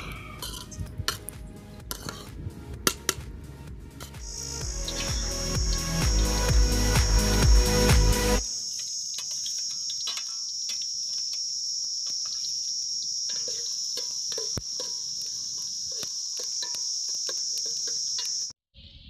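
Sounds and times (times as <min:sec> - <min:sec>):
metal spatula scraping pot: 0:01.9 - 0:02.3, 0:09.2 - 0:10.8, 0:13.3 - 0:18.4
high-pitched insect drone: 0:04.2 - 0:18.6.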